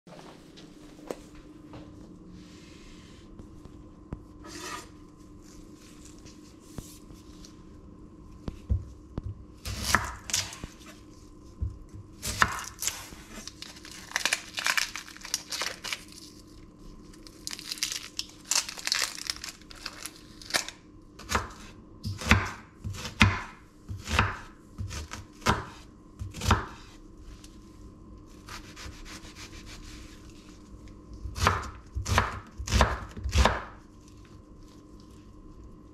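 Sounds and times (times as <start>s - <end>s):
faint steady hum: 0.1s - 35.9s
onion skin crackling and tearing: 12.3s - 20.8s.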